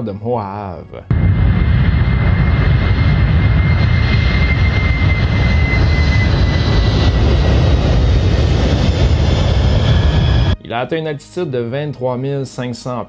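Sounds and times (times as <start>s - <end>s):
jet engines running: 1.1s - 10.6s.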